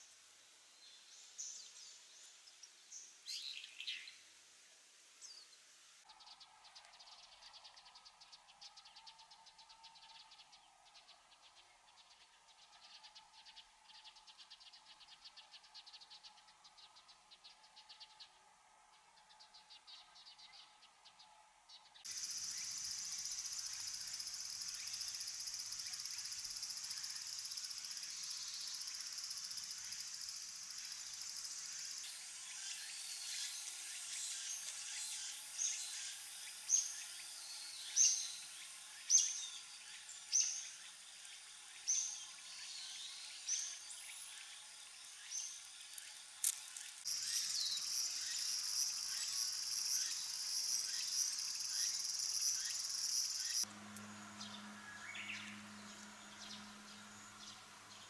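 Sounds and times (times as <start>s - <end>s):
insects droning: 22.1s - 58.0s.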